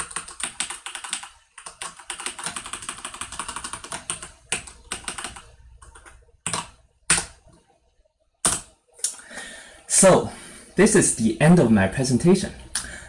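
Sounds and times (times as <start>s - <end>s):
keyboard typing: 0.0s - 7.8s, 8.4s - 8.8s.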